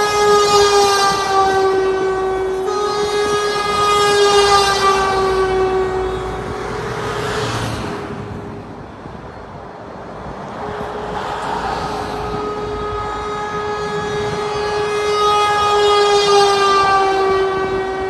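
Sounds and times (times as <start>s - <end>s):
air horn long note: 0.0s - 8.3s, 10.4s - 18.0s
vehicle rushing past: 3.9s - 9.2s, 10.0s - 14.8s.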